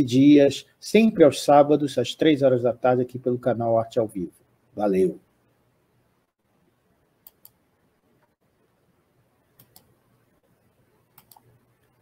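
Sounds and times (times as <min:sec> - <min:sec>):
faint short clicks: 0:11.1 - 0:11.5.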